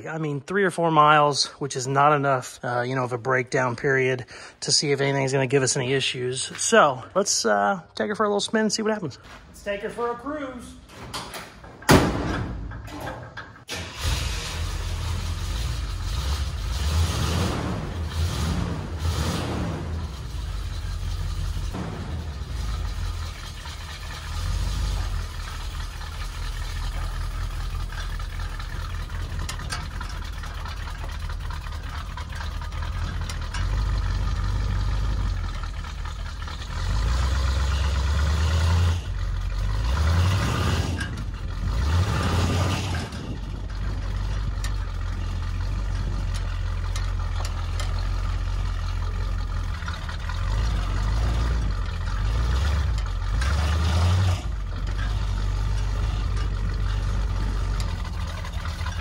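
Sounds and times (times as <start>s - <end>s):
odd mechanical noise: 11.5s - 59.0s
truck engine revving: 13.6s - 59.0s.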